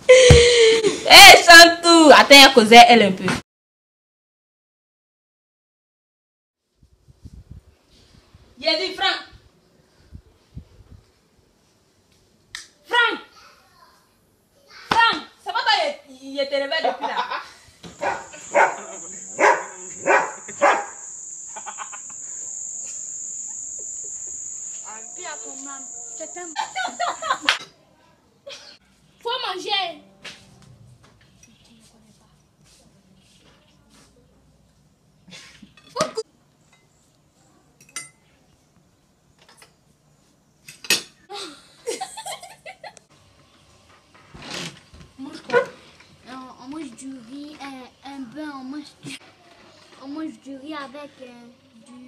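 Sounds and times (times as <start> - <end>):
laughter: 16.8 - 17.6, 21.5 - 22.2, 26.5 - 27.6, 28.4 - 28.8, 41.3 - 43.1
crickets chirring: 18.0 - 27.6
cutlery clinking on plates: 37.8 - 38.3.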